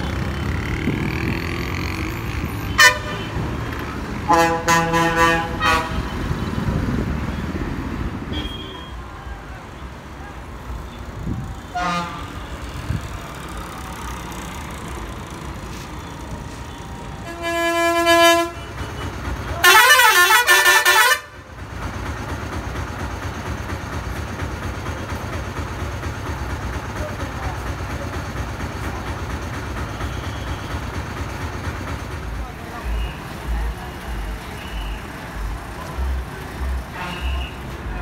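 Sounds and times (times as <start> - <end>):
bus engine rumble: 0.0 - 38.0
steady horn blast: 2.6 - 3.4, 4.2 - 6.2, 11.7 - 12.5, 17.2 - 18.7, 19.6 - 21.4, 36.6 - 37.6.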